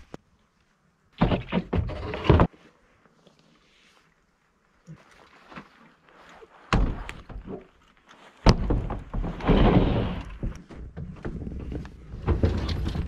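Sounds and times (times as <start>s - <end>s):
heavy thunks on truck bed: 8.4s - 13.0s.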